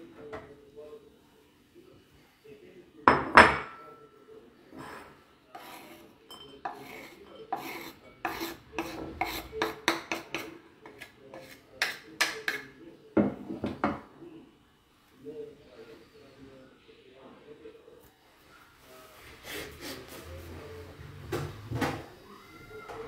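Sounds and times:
scraping on wooden cutting board: 5.5s - 6.1s, 6.7s - 12.6s.

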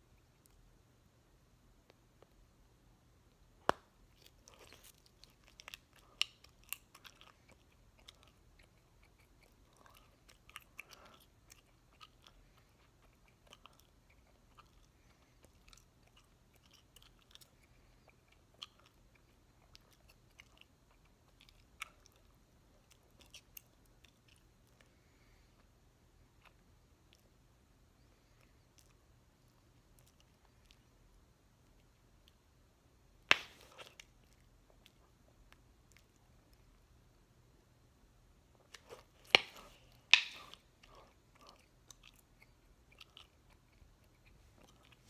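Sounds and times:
gum chewing wet smacks: 3.7s - 24.9s, 38.5s - 45.0s.

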